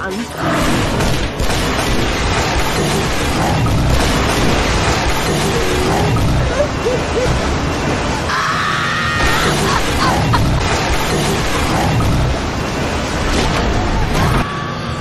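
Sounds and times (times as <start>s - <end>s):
storm noise: 0.4s - 15.0s
booms and crashes: 0.5s - 6.5s, 9.2s - 14.5s.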